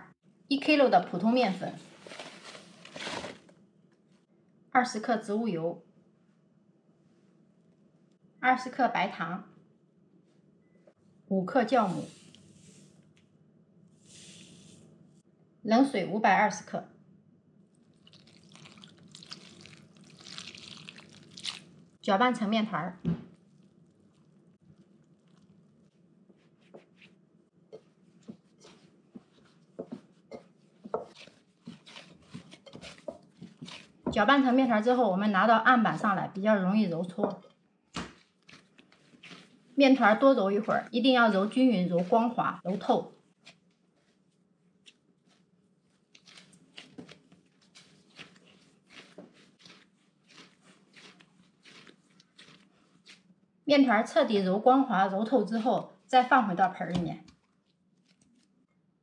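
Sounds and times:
dough squishing and slapping: 0:17.8 - 0:58.8
spatula scraping bowl: 0:26.6 - 0:35.0, 0:38.4 - 0:42.8, 0:46.2 - 0:53.3.

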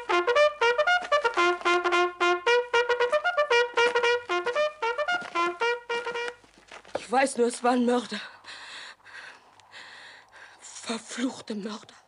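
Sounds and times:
trumpet playing short notes: 0:00.0 - 0:06.4.

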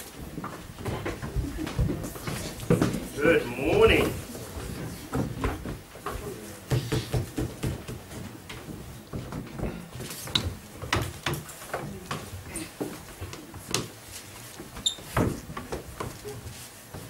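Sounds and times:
people rustling and moving: 0:00.0 - 0:17.0
low murmuring voices: 0:00.9 - 0:13.7.

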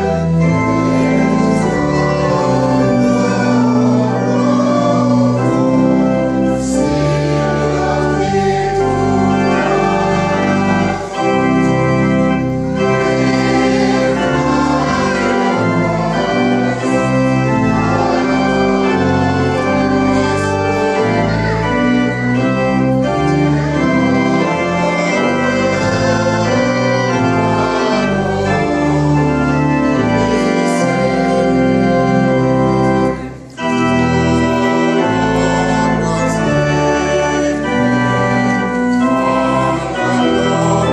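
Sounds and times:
choir singing a hymn: 0:00.0 - 0:40.9
church organ playing chords: 0:00.0 - 0:40.9.

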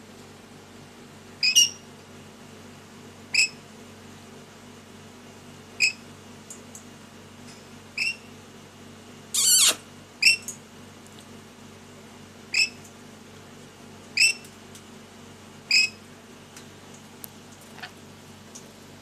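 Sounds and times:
parrot chirping: 0:01.4 - 0:01.8, 0:09.4 - 0:10.4
parrot screeching: 0:09.4 - 0:09.8.

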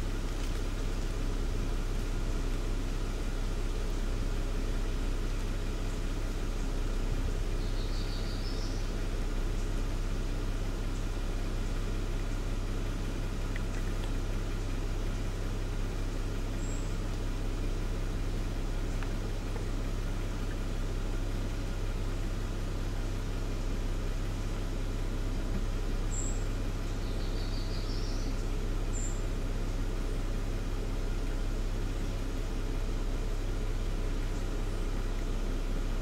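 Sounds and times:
low rumble and hum: 0:00.0 - 0:36.0
small bird chirping: 0:05.3 - 0:10.0, 0:10.8 - 0:23.4, 0:24.8 - 0:30.2.

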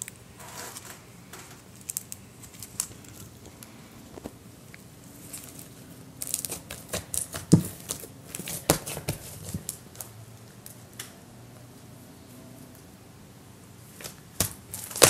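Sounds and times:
slime crackling and popping: 0:06.2 - 0:10.1, 0:14.0 - 0:15.0.

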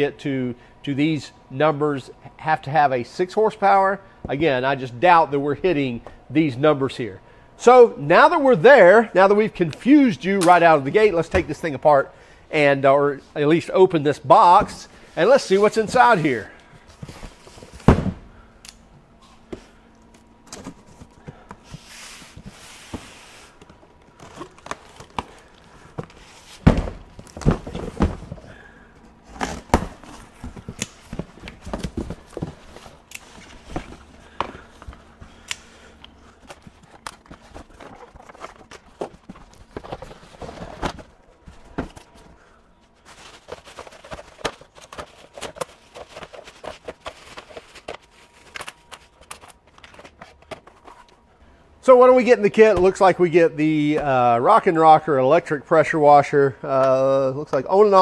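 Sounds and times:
box thumping on workbench: 0:17.8 - 0:18.3, 0:26.0 - 0:28.4.

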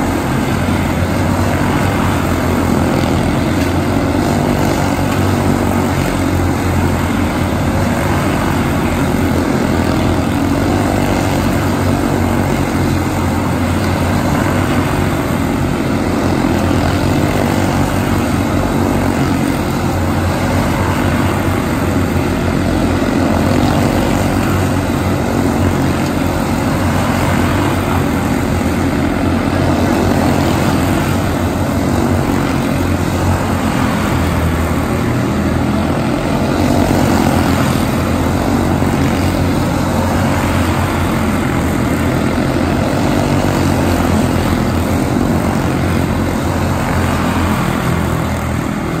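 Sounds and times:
race car engines droning: 0:00.0 - 0:49.0.

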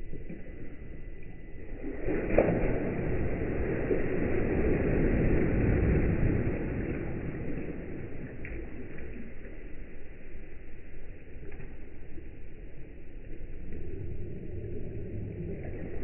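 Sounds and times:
rush of breaking water: 0:01.7 - 0:09.6
sharp water slap: 0:02.0 - 0:03.9.

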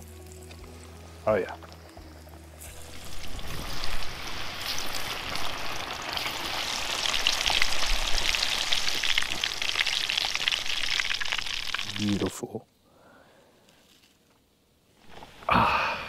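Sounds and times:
fish deep-frying in oil: 0:02.6 - 0:12.3.

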